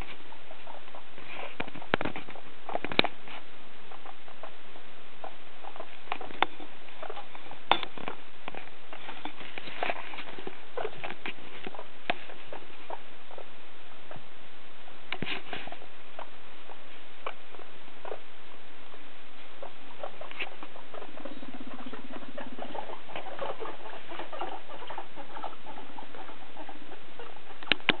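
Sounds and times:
guinea pigs rustling in hay: 0.0s - 28.0s
low buzzing: 15.8s - 28.0s.

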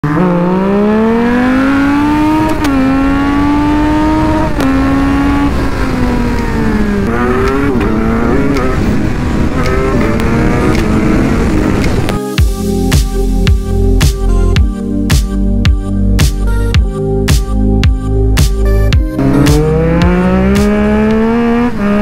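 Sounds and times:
motorcycle engine accelerating: 0.0s - 12.1s, 19.0s - 22.0s.

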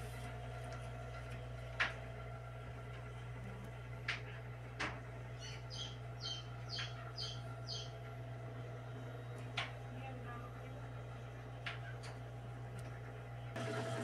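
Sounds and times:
chick peeping: 5.4s - 8.0s.

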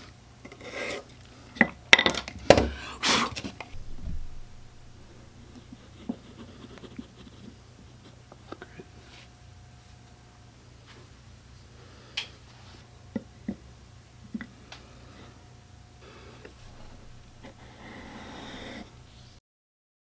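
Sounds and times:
pencil scratching on wood: 5.4s - 8.2s, 16.6s - 19.0s.

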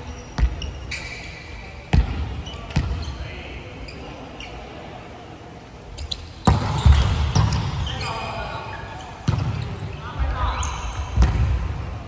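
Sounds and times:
volleyball smacks in gymnasium: 6.4s - 7.8s, 9.2s - 9.7s, 11.1s - 11.8s.

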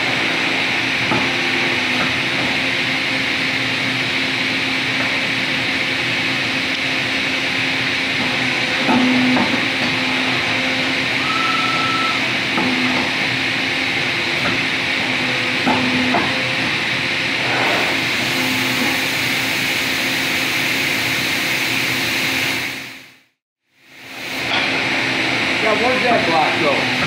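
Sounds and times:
machinery hum and hiss: 0.0s - 27.0s
short high tone: 11.2s - 12.3s.

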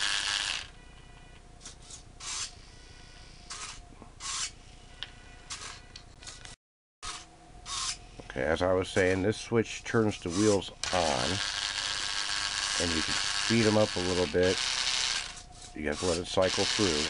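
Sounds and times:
toy electric motor whirring: 0.0s - 0.7s, 1.6s - 4.6s, 5.5s - 8.1s, 10.1s - 17.0s
faint motor whine: 0.0s - 17.0s.

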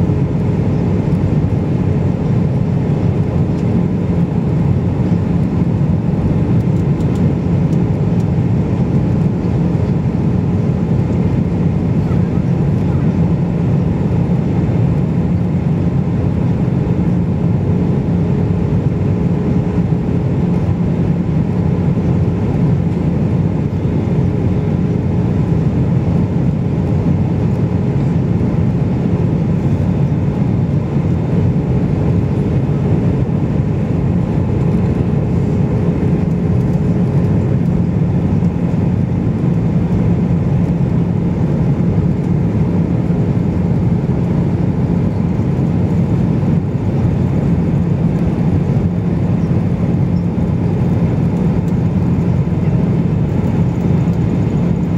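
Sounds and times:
jet engine drone: 0.0s - 54.9s.

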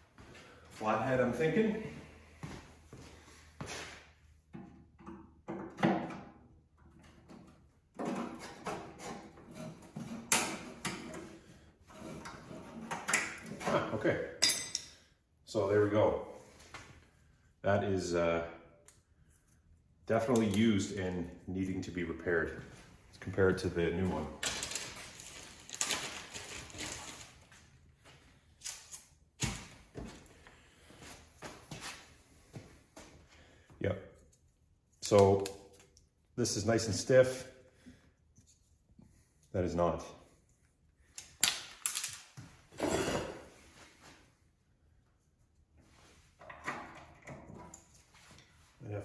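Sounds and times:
rustling and scraping parts: 24.1s - 29.1s.

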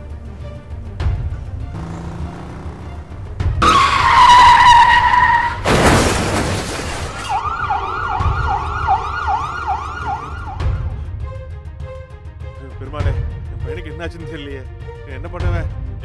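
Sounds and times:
tyres screeching: 1.8s - 8.0s
ambulance siren: 3.6s - 5.6s, 7.2s - 10.9s
car crash: 3.6s - 8.8s.

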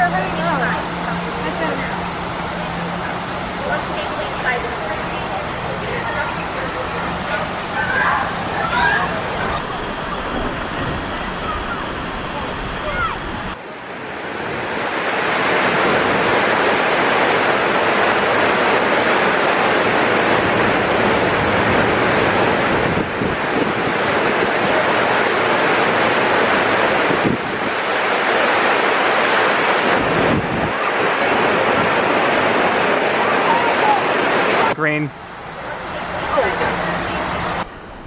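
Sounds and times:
rush of pouring water: 9.6s - 13.6s.

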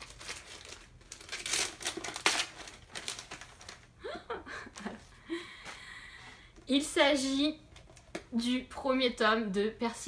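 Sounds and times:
wrapping paper crinkling and tearing: 0.0s - 3.9s.

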